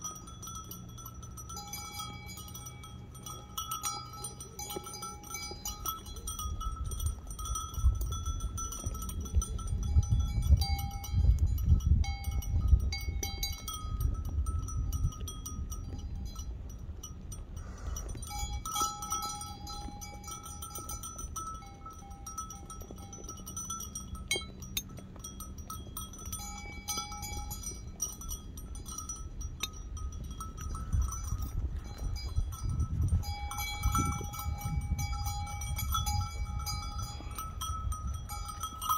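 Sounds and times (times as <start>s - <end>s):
bell-like ringing: 0.0s - 38.9s
low uneven rumbling: 0.0s - 38.9s.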